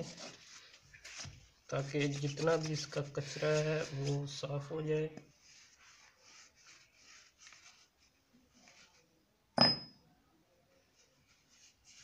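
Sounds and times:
faint rubbing and wiping: 0.0 - 9.2, 10.7 - 12.0
metallic clink with ring: 9.6 - 10.0.

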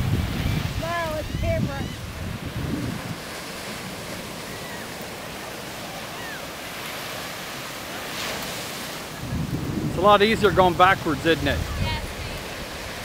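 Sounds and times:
wind buffeting microphone: 0.0 - 4.8, 8.7 - 13.0
surf breaking on beach: 0.0 - 13.0.

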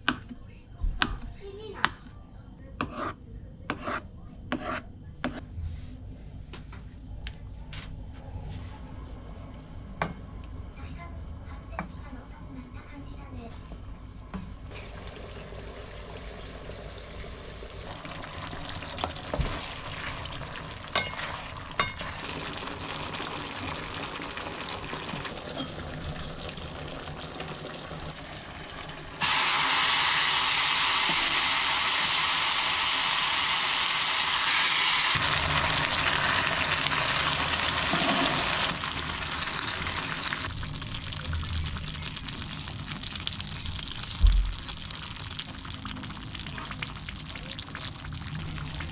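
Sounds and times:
quiet cooking noise: 0.0 - 48.9
food sizzling in hot pot: 14.7 - 48.9.

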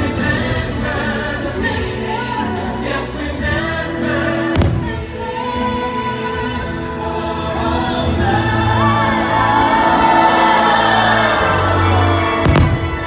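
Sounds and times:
music with choir over loudspeakers: 0.0 - 13.0
firework bang: 4.6 - 5.1, 12.4 - 13.0.

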